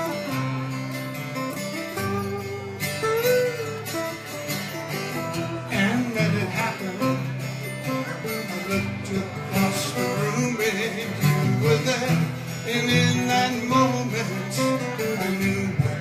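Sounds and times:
acoustic guitars strummed and picked: 0.0 - 16.0
man singing: 5.6 - 16.0.

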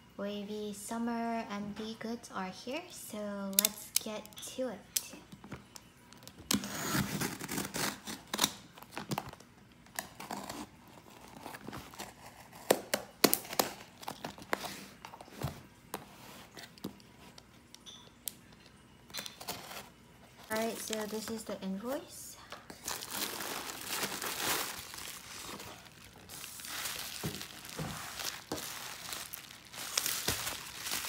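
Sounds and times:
knife slitting packing tape: 6.5 - 8.6.

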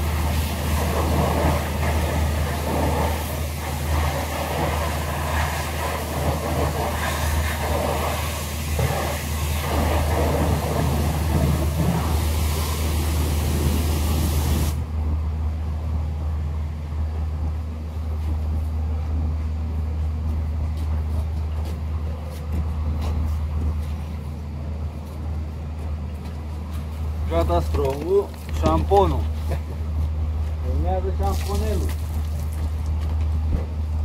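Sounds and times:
pressure washer spray hiss: 0.0 - 14.8
pressure washer motor hum: 0.0 - 14.9.

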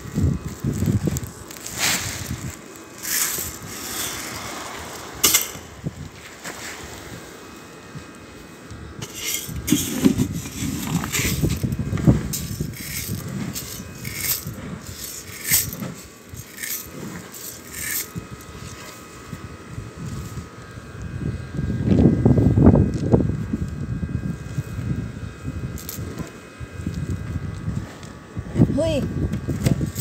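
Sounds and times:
grain rattling in a metal can: 0.2 - 5.7, 9.0 - 18.2.

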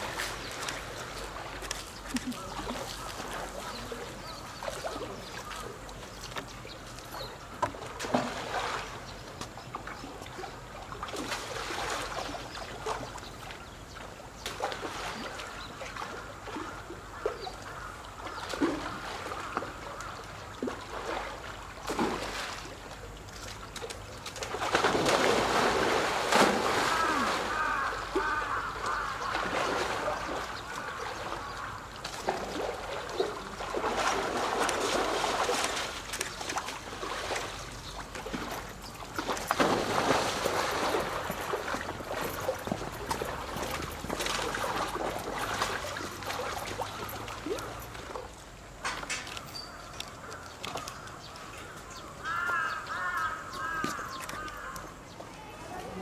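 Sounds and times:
animals splashing in water: 0.0 - 56.0
birds calling: 15.2 - 18.6, 26.3 - 34.4, 48.8 - 56.0.

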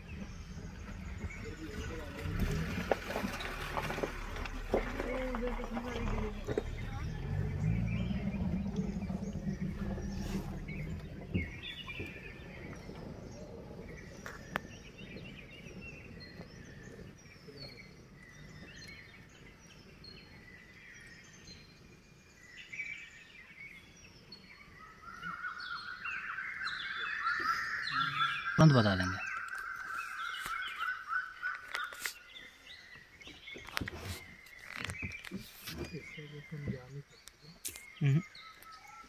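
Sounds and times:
birds chirping and calling: 0.0 - 39.0
vehicle engine rumbling: 0.0 - 39.0.

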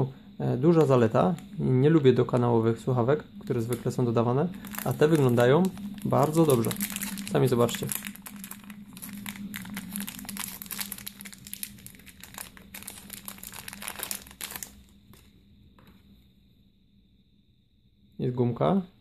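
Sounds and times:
faint low hum: 0.0 - 19.0
plastic bag crinkling: 4.6 - 15.3.

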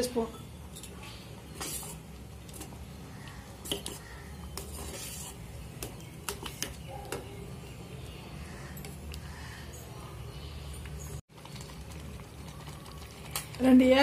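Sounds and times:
wet squelching stirring: 0.8 - 9.8, 10.8 - 14.0.

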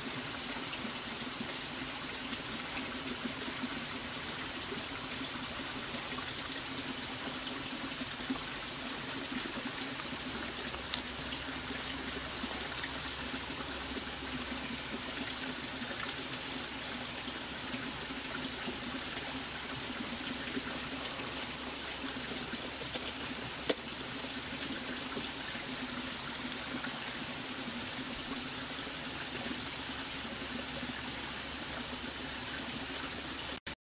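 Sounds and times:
running water: 0.0 - 33.7
sharp click: 23.6 - 23.8.

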